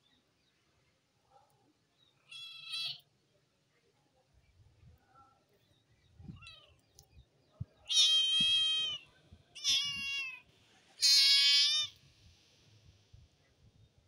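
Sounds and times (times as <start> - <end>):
kitten meowing: 7.9 - 9.0, 9.6 - 10.4, 11.0 - 12.0.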